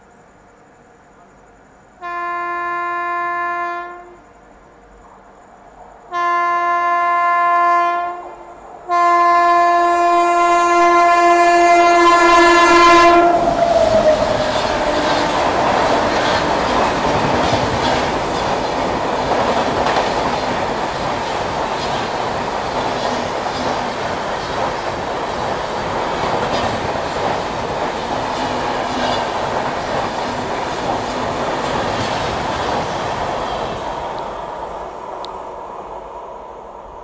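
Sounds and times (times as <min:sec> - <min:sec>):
train passing with wheel clatter: 0:00.0 - 0:37.0
locomotive horn blasts: 0:02.0 - 0:04.2, 0:06.1 - 0:08.3, 0:08.9 - 0:13.6.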